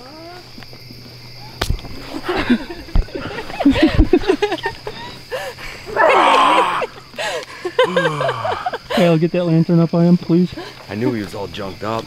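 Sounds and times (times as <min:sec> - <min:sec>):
crickets chirping: 0:00.0 - 0:12.0
people laughing and squealing: 0:02.0 - 0:09.0
loud shout: 0:05.9 - 0:06.9.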